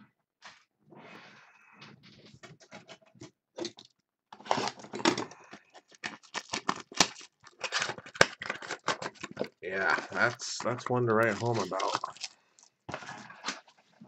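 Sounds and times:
wrapper crinkling: 4.3 - 14.0.

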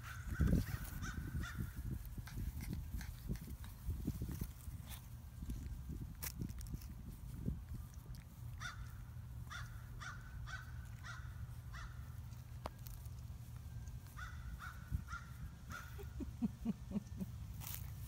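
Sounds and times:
crow cawing: 9.5 - 12.0.

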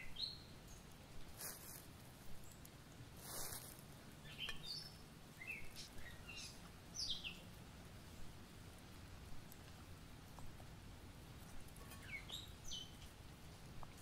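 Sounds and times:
songbirds chirping: 0.0 - 14.0
soft rustle: 0.8 - 14.0.

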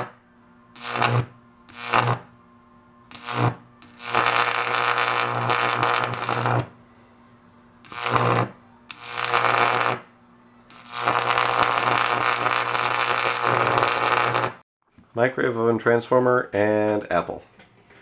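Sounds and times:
high-voltage arc buzzing: 0.0 - 2.4, 3.1 - 6.8, 7.8 - 14.6.

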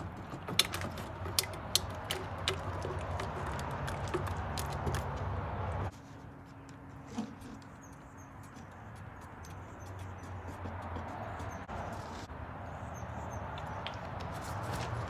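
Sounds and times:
stir stick scraping metal paint can: 0.0 - 5.1.

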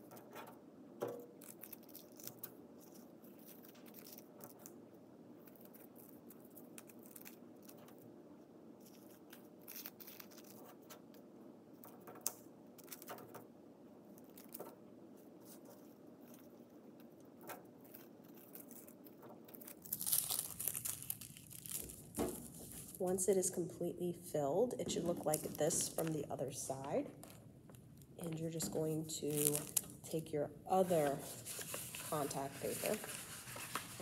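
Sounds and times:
low room hum: 0.0 - 34.0
tissue paper crinkling: 17.8 - 23.0, 29.2 - 34.0
tissue paper rustling and tapping: 19.9 - 23.0, 30.8 - 34.0.

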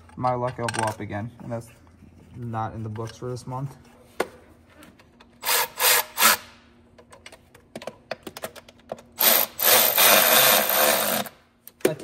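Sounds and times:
power tool driving bolts: 5.4 - 6.6, 9.2 - 11.4.

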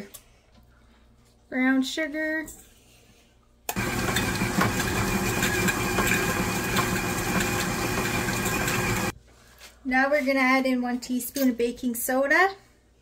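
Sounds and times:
stand mixer motor hum and whine: 3.7 - 9.1.

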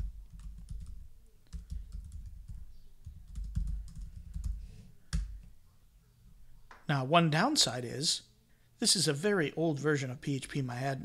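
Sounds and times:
typing on computer keyboard: 0.0 - 5.4.

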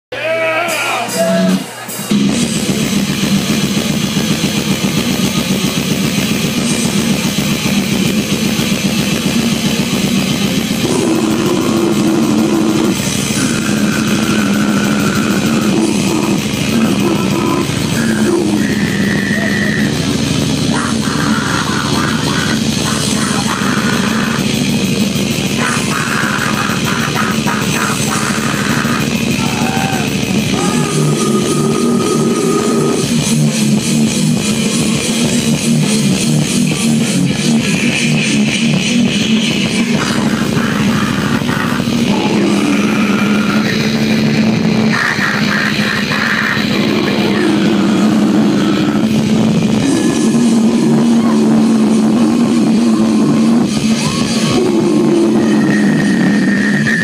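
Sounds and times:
distorted electric guitar riffing: 0.1 - 57.0
fast dense drumming: 2.1 - 57.0
held high guitar notes: 9.9 - 57.0.

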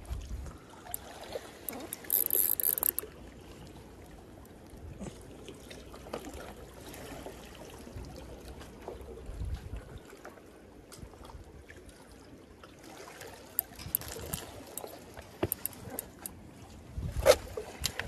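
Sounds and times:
water lapping among concrete blocks: 0.0 - 18.0
small ticks: 1.7 - 3.0, 13.6 - 16.3.

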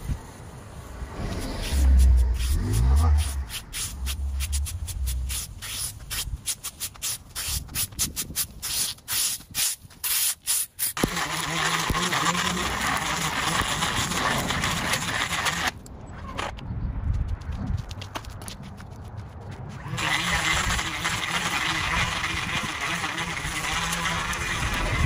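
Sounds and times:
steady rushing noise: 0.0 - 7.0
rake scraping grass clippings: 1.1 - 15.7.

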